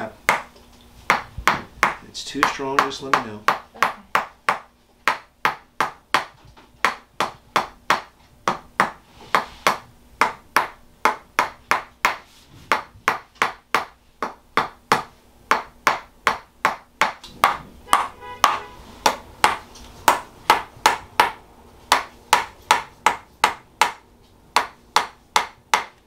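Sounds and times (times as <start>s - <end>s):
mallet knocking on stick: 9.7s - 24.0s.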